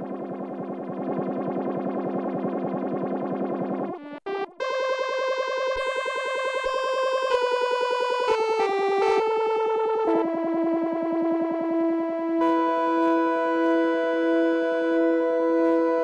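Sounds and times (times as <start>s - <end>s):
synthesizer pulsing tone: 0.0s - 7.3s, 12.2s - 16.0s.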